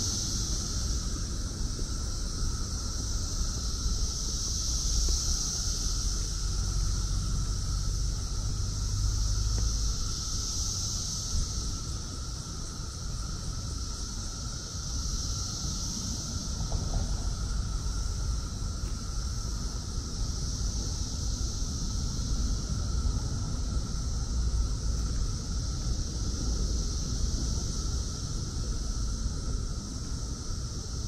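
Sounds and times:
cicadas buzzing: 0:00.0 - 0:31.0
low steady drone: 0:00.0 - 0:31.0.

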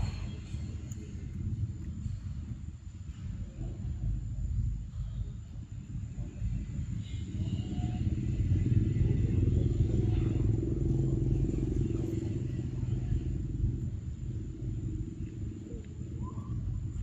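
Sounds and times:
vehicle engine passing by: 0:08.0 - 0:15.5.

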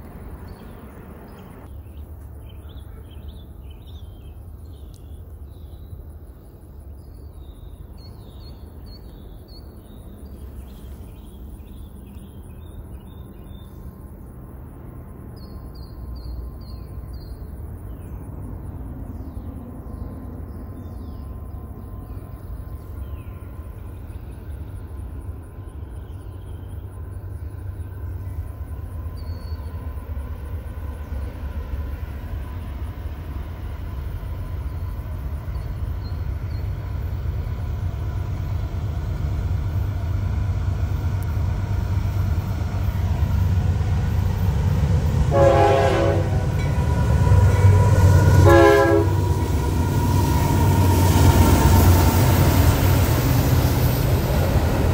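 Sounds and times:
locomotive engine rumble: 0:00.0 - 0:03.7, 0:08.6 - 0:54.9
locomotive horn blasts: 0:45.3 - 0:46.7, 0:47.6 - 0:49.3.

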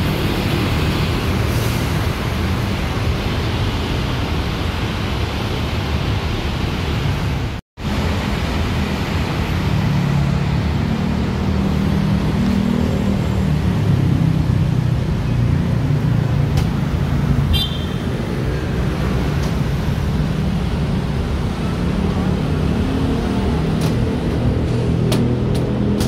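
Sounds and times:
bus engine drone: 0:00.0 - 0:17.5, 0:18.2 - 0:26.0
road traffic: 0:00.0 - 0:26.0.

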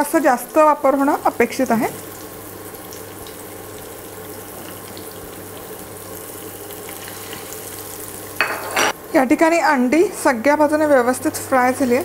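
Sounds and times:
eggs sizzling in hot oil: 0:00.0 - 0:12.0.

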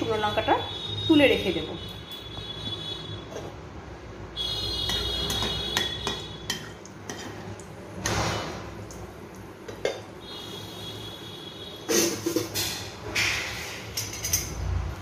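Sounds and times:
spatula tapping frying pan: 0:04.8 - 0:07.7.

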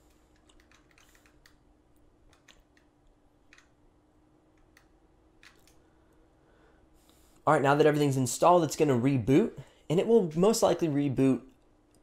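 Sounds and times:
faint irregular clicks: 0:00.0 - 0:03.8, 0:04.5 - 0:05.9
faint steady hum: 0:00.0 - 0:12.0.

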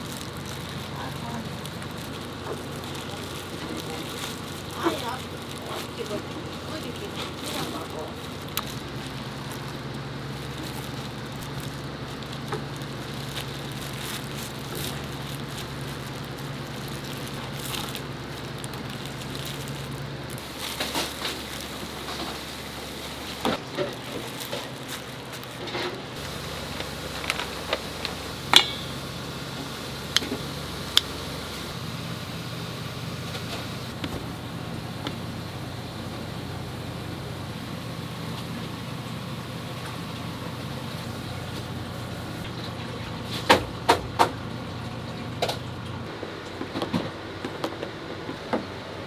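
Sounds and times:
crackling hiss: 0:00.0 - 0:42.6
steady hum: 0:00.0 - 0:49.0.

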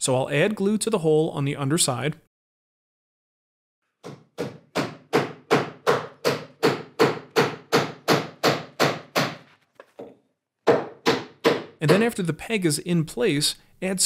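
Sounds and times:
hammer knocking wooden peg: 0:04.0 - 0:12.2.

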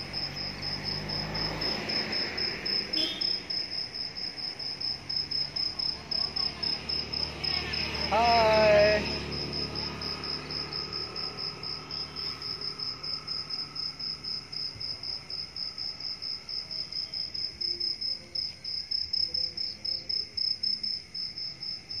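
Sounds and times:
cricket chirping: 0:00.0 - 0:22.0.

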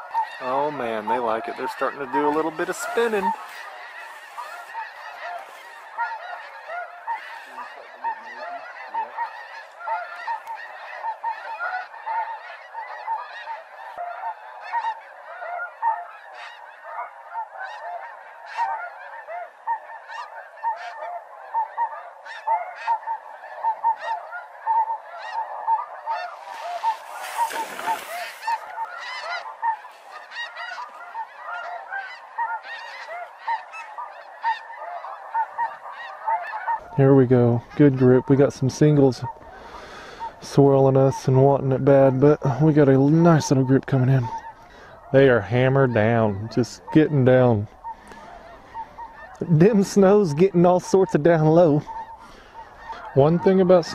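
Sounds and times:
geese honking: 0:00.0 - 0:53.9.

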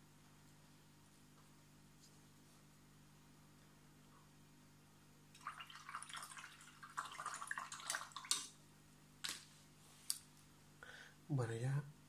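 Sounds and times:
paintbrush splashing in water jar: 0:05.4 - 0:08.6.

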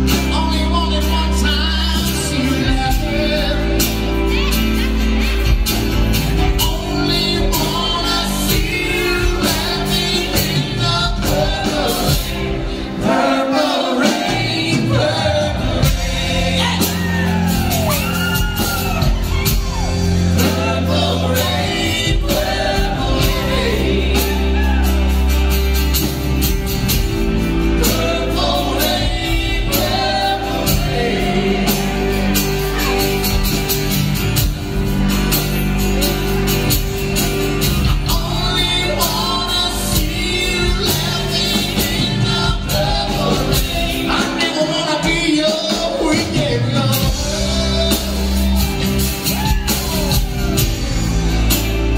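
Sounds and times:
person singing: 0:00.0 - 0:25.7, 0:36.0 - 0:51.6
acoustic guitar: 0:00.0 - 0:51.9
bass guitar: 0:00.0 - 0:51.9
drum kit: 0:00.0 - 0:51.9
electric guitar: 0:14.1 - 0:51.9.

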